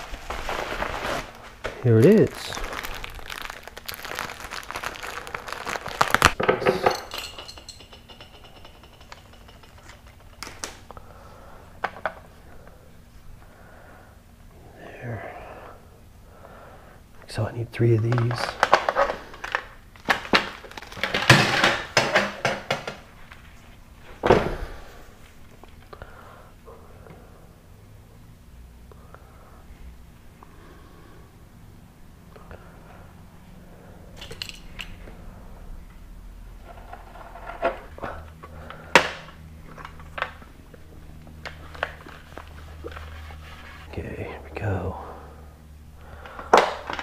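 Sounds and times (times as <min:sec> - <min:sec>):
tape ripping off roll: 0:00.0 - 0:06.4
steady low hum: 0:00.0 - 0:47.0.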